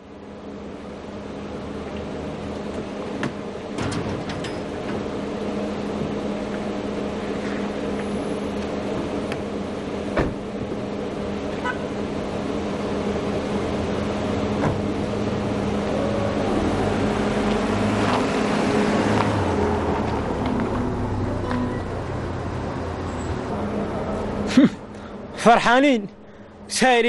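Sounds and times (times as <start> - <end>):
car engine pulling away: 4.8 - 24.5
car door shutting: 10.1 - 10.5, 14.6 - 14.9.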